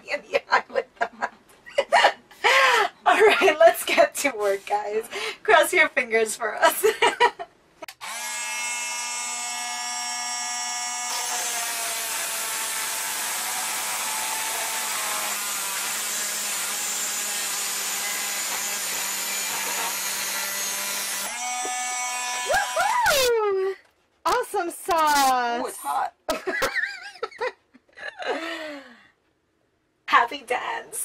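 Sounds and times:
multi-tool cutting steel screw: 7.9 - 23.3.

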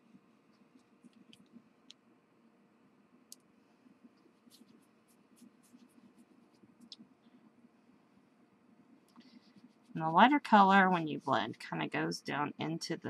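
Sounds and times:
crayon rubbing on paper: 4.4 - 6.6.

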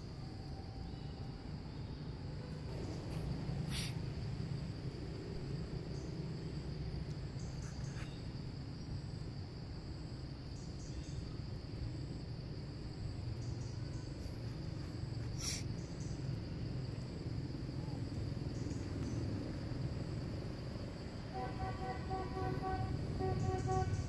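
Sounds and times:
high-pitched insect drone: 21.2 - 24.0.

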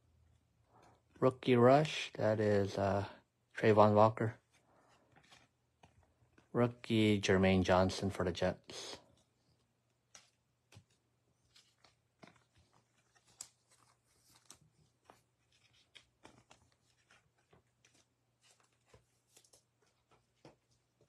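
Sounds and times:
cards clicking and rustling: 4.4 - 6.5, 9.1 - 21.0.

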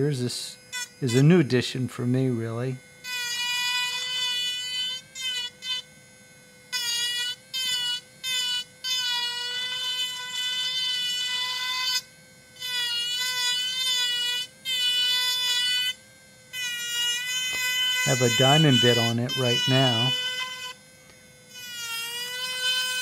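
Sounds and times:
rotary carver whining on wood: 0.0 - 23.0.

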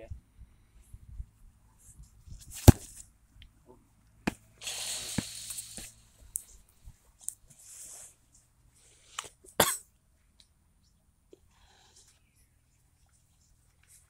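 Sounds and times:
football kick thud: 2.5 - 2.9.

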